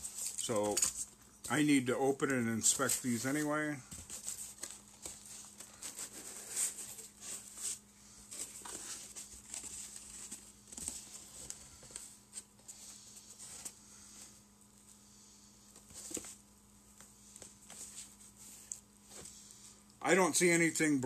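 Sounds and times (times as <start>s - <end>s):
cardboard and foam rustling: 0.0s - 14.4s, 15.7s - 16.5s.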